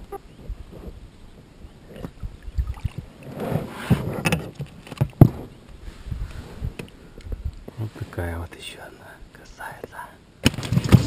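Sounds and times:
water splashing: 0:02.4 - 0:03.3
rustling: 0:10.4 - 0:11.0.

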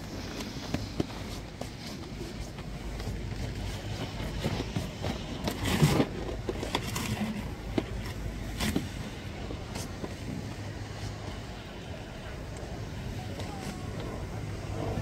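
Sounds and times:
steady rush of noise: 0:00.0 - 0:15.0
faint voices: 0:06.0 - 0:15.0.

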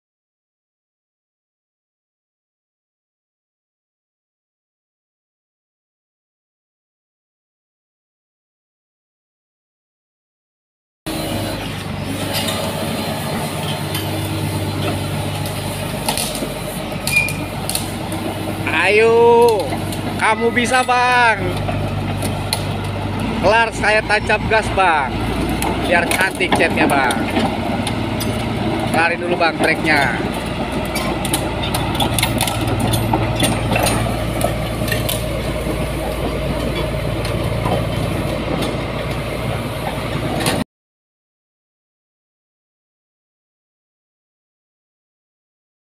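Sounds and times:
bulldozer diesel engine running: 0:11.1 - 0:40.6
metallic clinks and clanks: 0:30.9 - 0:35.3.

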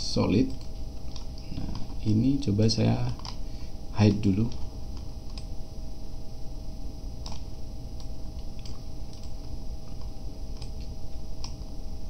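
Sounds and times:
low hum: 0:00.0 - 0:12.0
computer mouse clicks: 0:00.5 - 0:02.0, 0:03.1 - 0:03.4, 0:04.5 - 0:05.5, 0:07.2 - 0:11.7.

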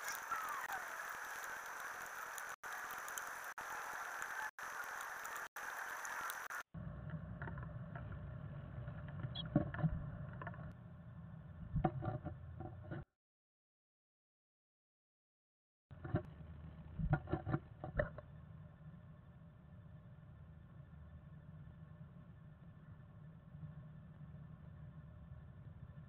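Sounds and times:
microphone hiss: 0:00.0 - 0:06.6
low hum: 0:00.0 - 0:13.0, 0:16.0 - 0:26.0.

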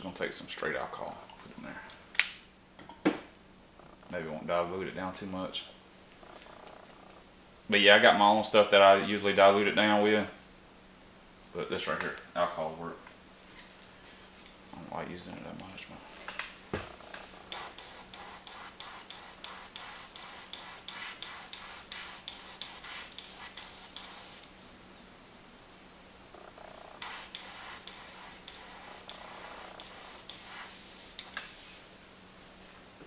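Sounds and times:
airbrush spraying bursts: 0:17.5 - 0:24.5, 0:27.0 - 0:31.5.

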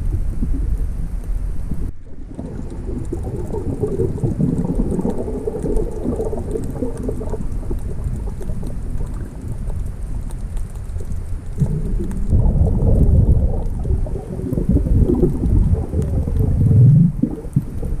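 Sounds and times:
crackly bubbling: 0:00.0 - 0:18.0
muffled underwater water rush: 0:00.0 - 0:18.0.

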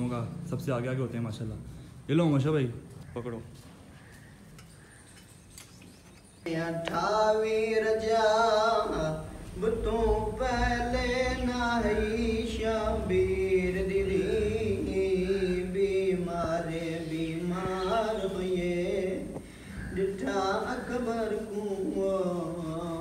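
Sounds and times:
man chanting melodically: 0:06.4 - 0:23.0.

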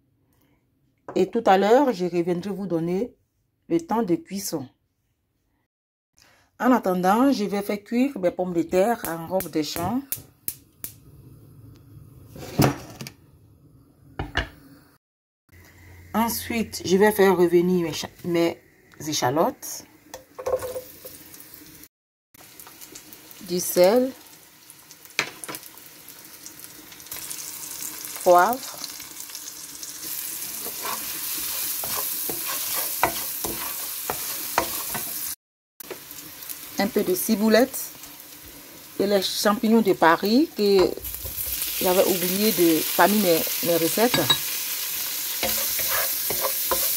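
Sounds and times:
shallots sizzling in oil: 0:08.7 - 0:12.5, 0:15.6 - 0:46.9.

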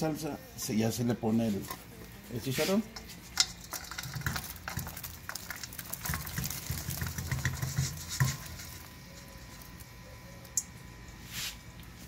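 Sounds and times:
food plopping into boiling sauce: 0:03.4 - 0:09.9.

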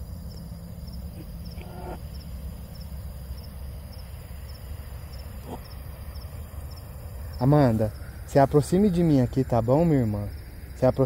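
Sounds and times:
crickets chirping: 0:00.0 - 0:11.0
steady low hum: 0:00.0 - 0:11.0.

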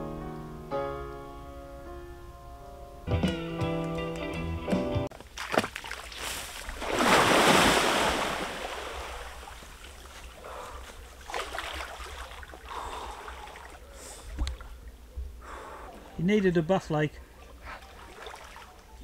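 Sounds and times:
person plunging into river: 0:05.2 - 0:10.4, 0:11.0 - 0:14.6
swimming splashes: 0:05.3 - 0:14.8, 0:17.3 - 0:19.0
water churning: 0:05.4 - 0:15.0.

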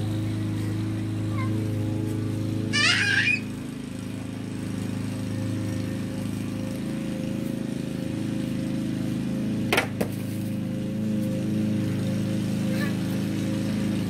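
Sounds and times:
lawn mower engine running: 0:00.0 - 0:14.0.

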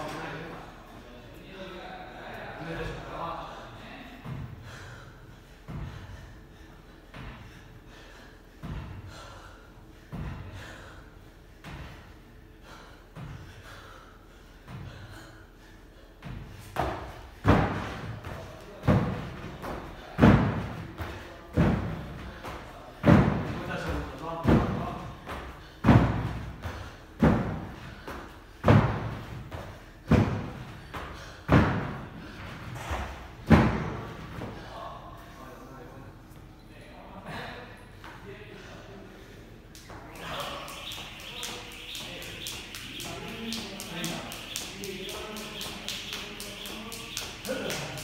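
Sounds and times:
man breathing hard: 0:04.3 - 0:16.7
feet landing with heavy thuds: 0:08.6 - 0:09.2, 0:16.2 - 0:23.7, 0:24.4 - 0:34.4.

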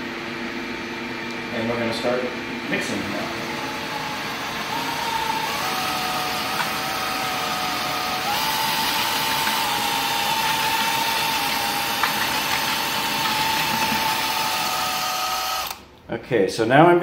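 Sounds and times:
vacuum cleaner running: 0:00.0 - 0:15.8
electric drill mixing grout: 0:02.8 - 0:15.8.

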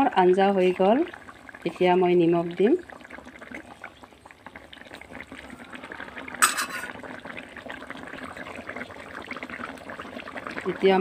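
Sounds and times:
curry bubbling in a pot: 0:00.0 - 0:11.0
crackle of small pops: 0:03.0 - 0:05.5.

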